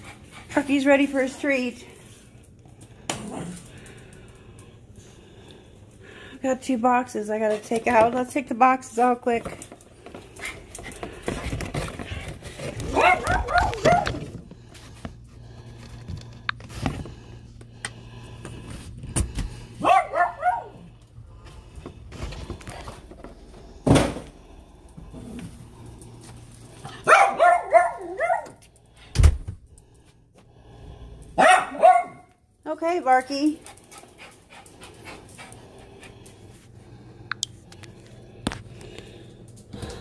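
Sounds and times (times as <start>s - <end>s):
low steady hum: 0.0s - 40.0s
small dogs barking: 12.9s - 14.2s, 19.8s - 20.9s, 26.9s - 28.6s, 31.4s - 32.3s.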